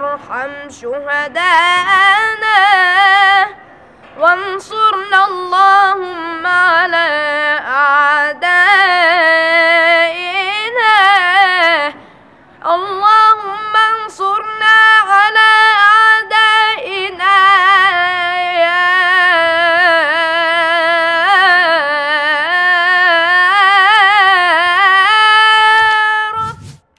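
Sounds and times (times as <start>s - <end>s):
boy singing unaccompanied: 0.0s - 3.6s, 4.2s - 12.0s, 12.6s - 26.6s
breath: 3.6s - 4.2s, 11.9s - 12.6s.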